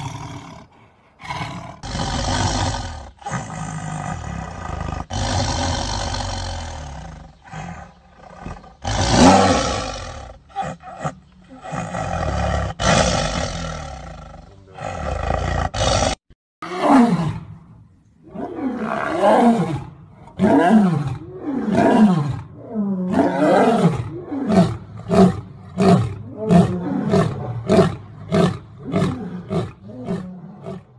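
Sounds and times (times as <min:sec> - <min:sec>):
tiger snarling and growling: 0:00.0 - 0:17.4, 0:18.2 - 0:30.9
lion roaring: 0:18.2 - 0:30.9.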